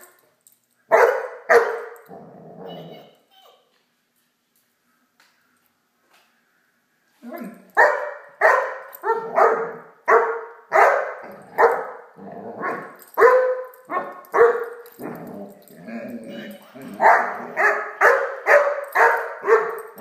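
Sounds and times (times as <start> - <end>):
puppy barking: 0.9 - 2.0, 7.8 - 14.8, 16.2 - 20.0.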